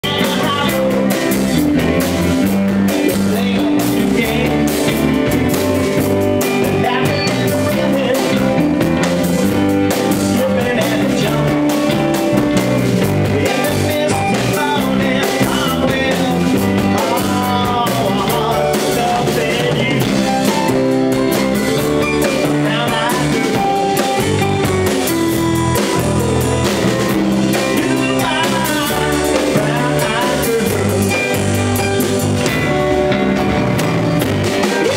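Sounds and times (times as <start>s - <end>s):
man singing into a microphone: 0.0s - 1.8s, 2.9s - 5.3s, 6.4s - 9.1s, 10.0s - 12.2s, 13.2s - 20.6s, 22.1s - 24.1s, 27.5s - 31.6s
congas: 0.0s - 34.9s
drum kit: 0.0s - 34.9s
organ: 0.0s - 34.9s.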